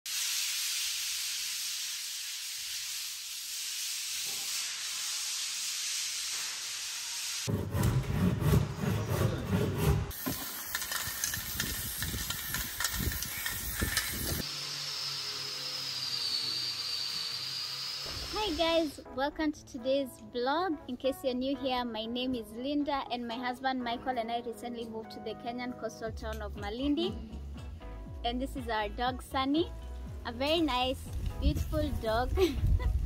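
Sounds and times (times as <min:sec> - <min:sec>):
floor sanded by hand: 0:00.1 - 0:18.8
electric sander whining: 0:13.4 - 0:18.4.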